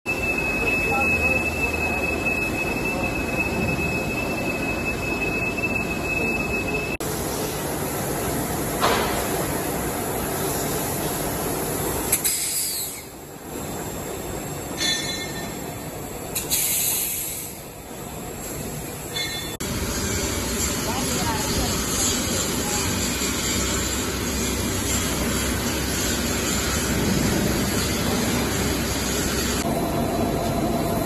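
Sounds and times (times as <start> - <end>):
metal-working machine tools running: 18.9 - 31.0.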